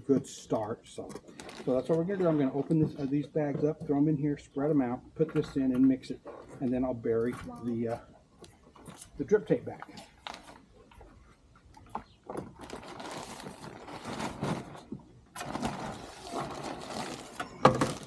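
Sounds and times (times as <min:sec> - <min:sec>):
plastic bags crinkling: 0:01.1 - 0:02.3, 0:12.2 - 0:18.0.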